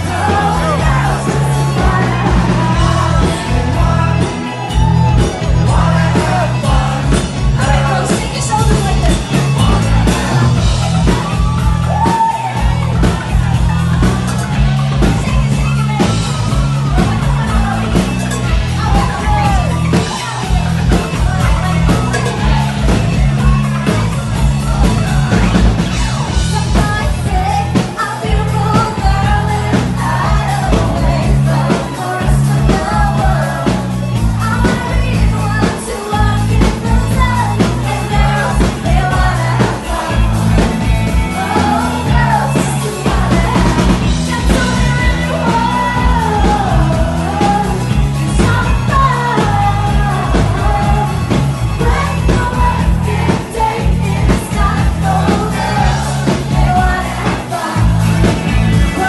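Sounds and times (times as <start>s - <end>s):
crowd yelling and singing along: 0.0s - 59.0s
loud rock music: 0.0s - 59.0s
woman singing into a microphone: 26.6s - 33.7s, 34.3s - 40.2s, 41.4s - 58.0s.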